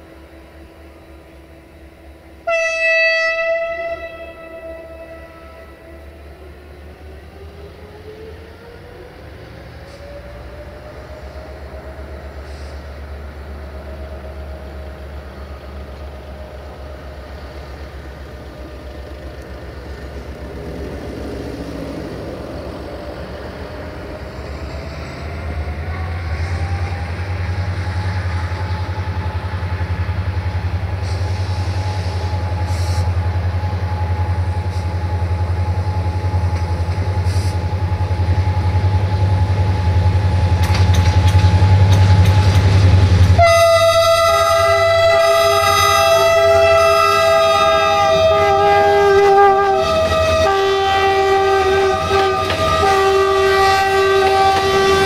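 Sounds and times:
multi-tone locomotive horn: 0:00.0 - 0:06.4, 0:43.3 - 0:55.0
diesel locomotive engines rumbling: 0:00.0 - 0:55.0
wheels clacking over rail joints: 0:39.6 - 0:43.8, 0:51.3 - 0:55.0.

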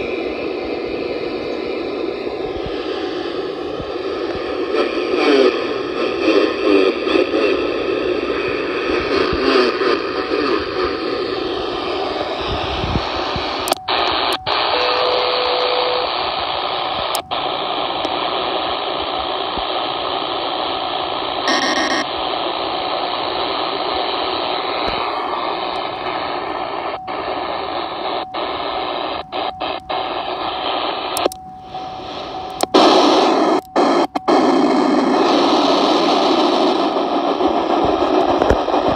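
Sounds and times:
radio static hiss: 0:00.0 - 0:38.9
faint steady tone: 0:10.0 - 0:22.5, 0:23.8 - 0:35.9
burst of tones: 0:21.4 - 0:22.8.

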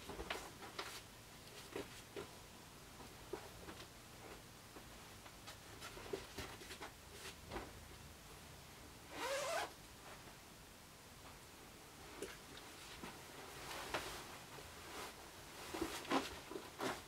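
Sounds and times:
zipper: 0:09.1 - 0:09.7
fabric rustling: 0:09.1 - 0:10.3, 0:12.0 - 0:17.0.

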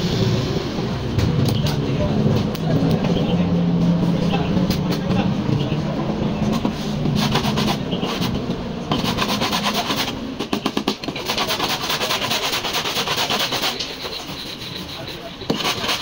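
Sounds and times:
abrasive rubbing on car body: 0:06.4 - 0:16.0.

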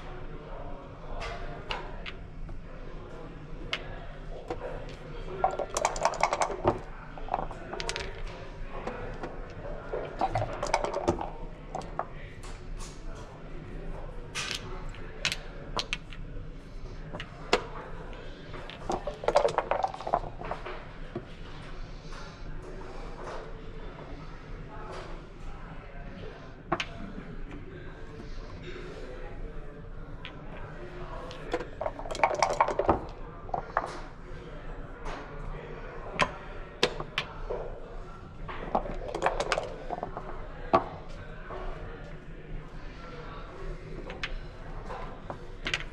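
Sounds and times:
dice rattling: 0:05.4 - 0:12.1, 0:15.2 - 0:16.2, 0:18.7 - 0:20.4, 0:31.3 - 0:34.0, 0:38.6 - 0:41.0
plastic checkers clacking on board: 0:05.4 - 0:12.2, 0:18.7 - 0:20.6, 0:31.3 - 0:34.0, 0:38.5 - 0:40.9.

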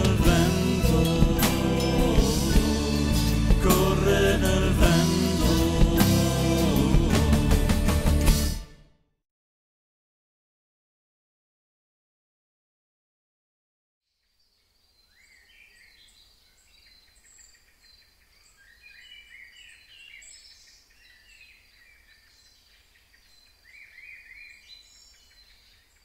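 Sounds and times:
birds chirping and whistling: 0:14.9 - 0:26.0.

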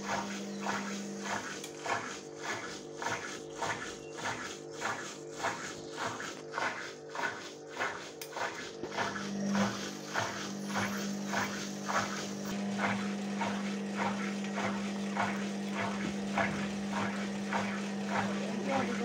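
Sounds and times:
washing machine motor hum: 0:00.0 - 0:19.0.

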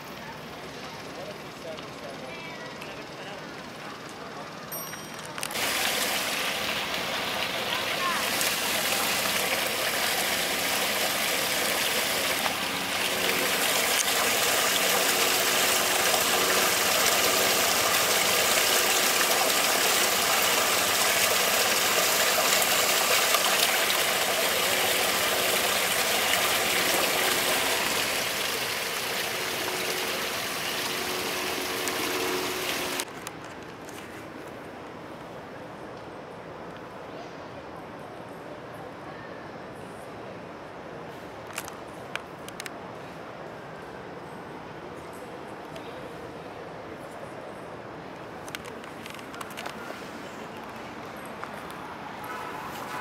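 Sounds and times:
water rushing in storm drain: 0:05.4 - 0:33.4, 0:48.0 - 0:53.0.

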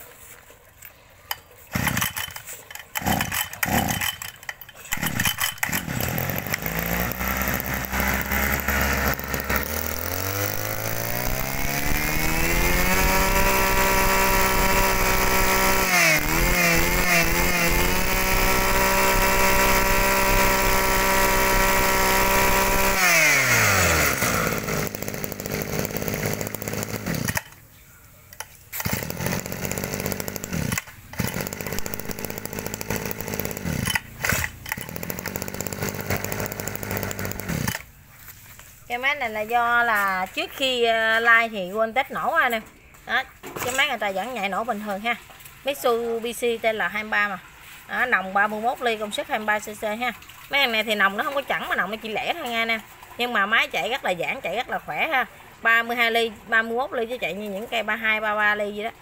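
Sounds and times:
brush-cutter engine revving: 0:01.3 - 0:27.6, 0:28.3 - 0:38.7.

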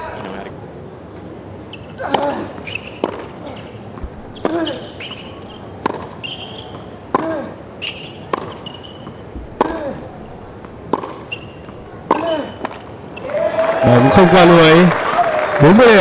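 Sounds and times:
shoes squeaking on court: 0:01.6 - 0:13.3
racket striking tennis ball: 0:02.0 - 0:03.4, 0:04.0 - 0:12.9.

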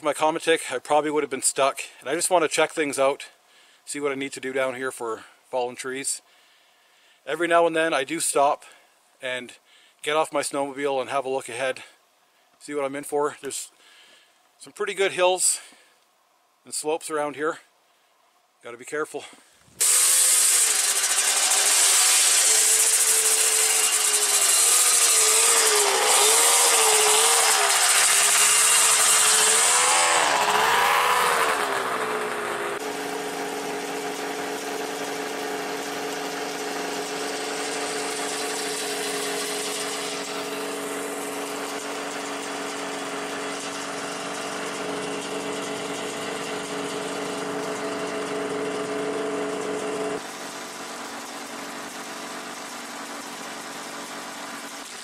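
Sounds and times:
snow hiss: 0:19.7 - 0:32.3
snowmobile engine running: 0:19.8 - 0:55.0.

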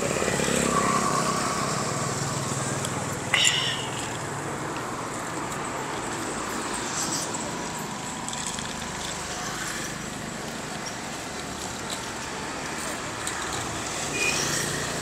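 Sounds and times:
passing motorbikes and cars: 0:00.0 - 0:15.0.

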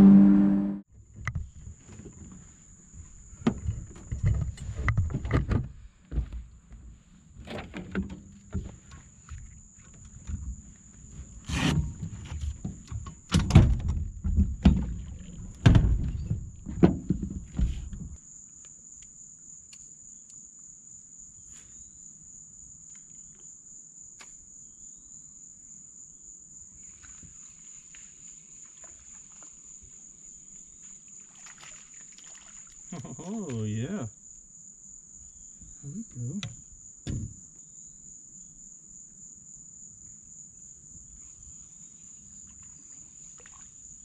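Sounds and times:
footsteps on boat deck: 0:01.4 - 0:07.0
high insect buzz: 0:18.2 - 0:44.0.

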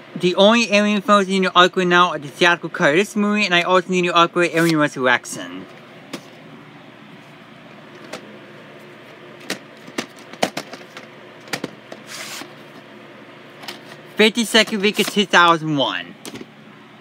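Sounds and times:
short scrape: 0:12.0 - 0:12.5.

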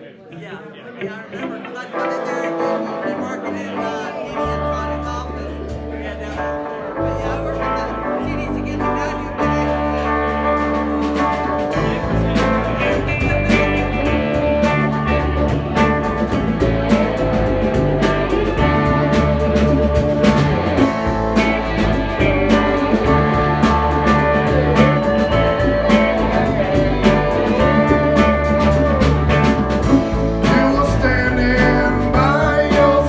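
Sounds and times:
electric guitars: 0:00.3 - 0:33.0
drums: 0:01.4 - 0:33.0
electric bass: 0:02.8 - 0:33.0.

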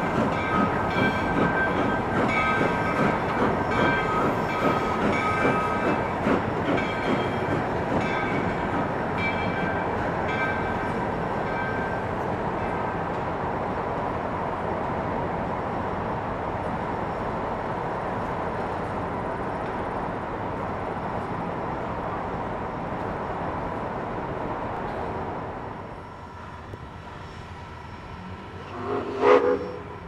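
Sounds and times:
steam train rumbling past: 0:00.0 - 0:12.0, 0:27.0 - 0:30.0.

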